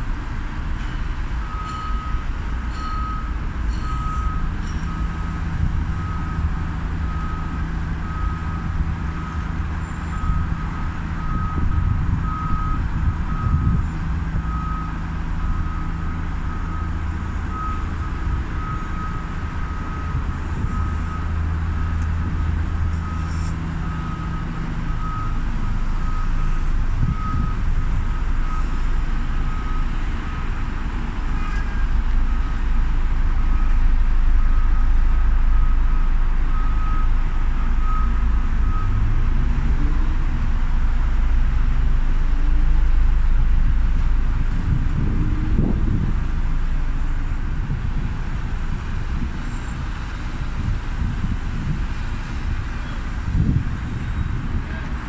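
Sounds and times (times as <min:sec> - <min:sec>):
city traffic: 0:00.0 - 0:55.0
low engine rumble: 0:00.0 - 0:55.0
reversing alarm beeping: 0:00.8 - 0:40.2.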